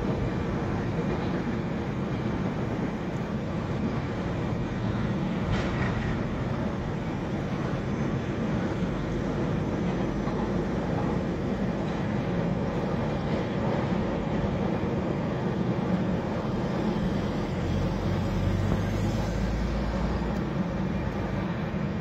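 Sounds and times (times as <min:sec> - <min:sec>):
freight train rumbling: 0:00.0 - 0:22.0.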